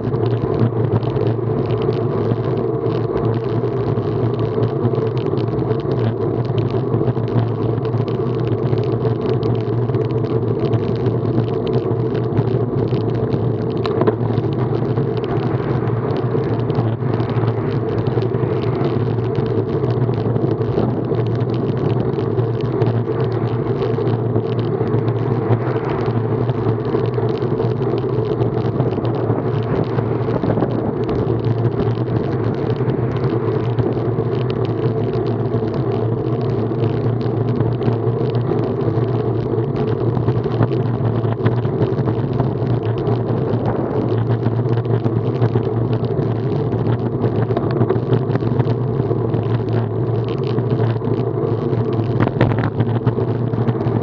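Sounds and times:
bicycle tyres on asphalt: 0.0s - 54.0s
wind rushing: 29.0s - 33.9s.

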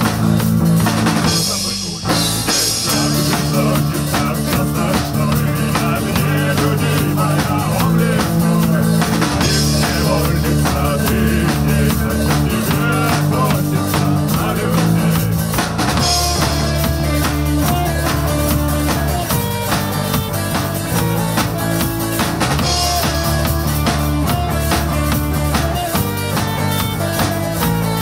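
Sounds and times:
bass guitar: 0.0s - 28.0s
drum kit: 0.0s - 28.0s
electric and acoustic guitars: 0.0s - 28.0s
man singing: 1.1s - 17.9s.

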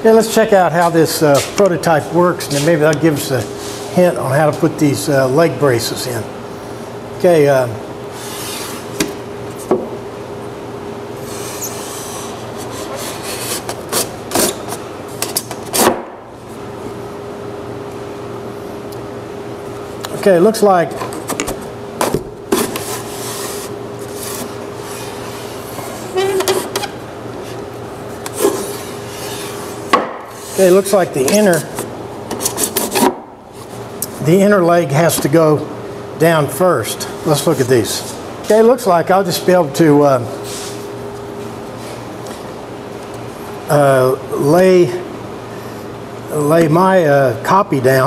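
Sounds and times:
steady hum: 0.0s - 48.0s.

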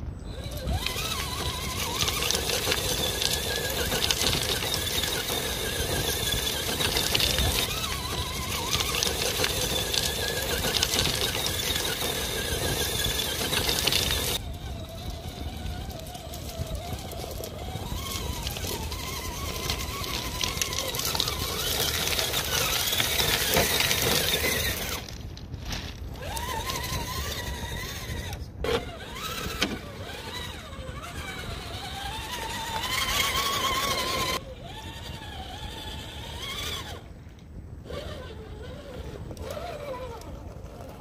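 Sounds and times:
electric motor and gears whining: 0.0s - 41.0s
stones crunching under tyres: 0.5s - 34.4s.

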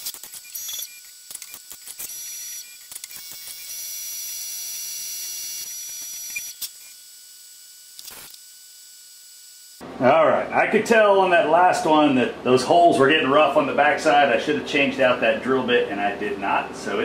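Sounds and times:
sharp clicks and ticks: 0.0s - 3.6s
milling machine spindle whine: 0.0s - 9.8s.

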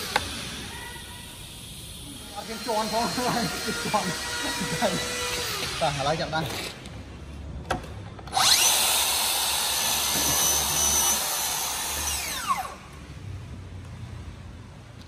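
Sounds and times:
plunge saw cutting wood: 0.0s - 0.7s, 1.8s - 6.8s, 8.3s - 12.8s.

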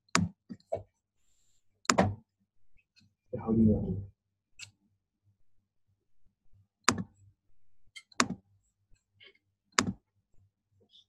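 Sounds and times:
computer mouse clicks: 6.8s - 7.2s.

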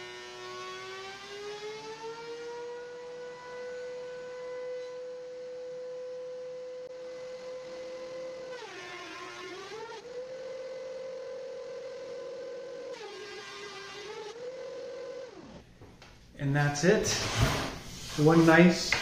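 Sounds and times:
thickness planer whining: 0.0s - 15.7s, 16.9s - 19.0s
planer knives cutting board: 17.0s - 19.0s.

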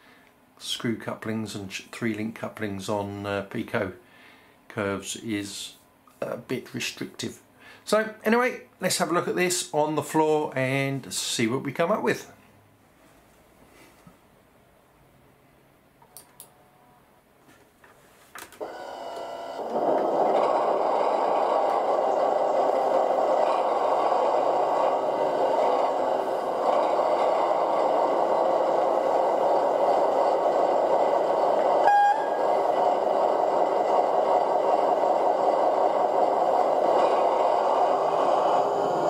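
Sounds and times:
clicks: 16.0s - 16.6s
model diesel engine sound: 18.6s - 39.0s.

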